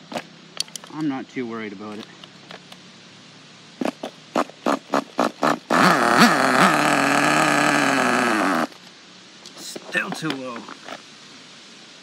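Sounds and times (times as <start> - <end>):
small nitro engine revving: 3.8 - 8.8.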